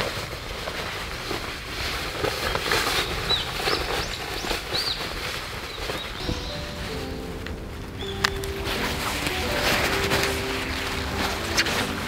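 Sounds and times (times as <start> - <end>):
nylon jacket rustling: 0.0 - 12.0
bird chirping: 3.0 - 12.0.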